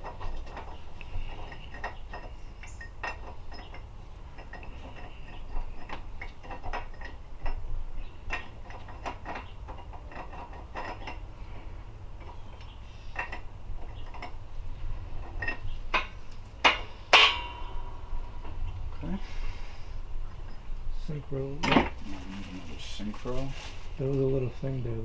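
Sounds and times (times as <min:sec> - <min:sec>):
steel parts clinking: 0:00.0 - 0:11.3, 0:15.2 - 0:18.1.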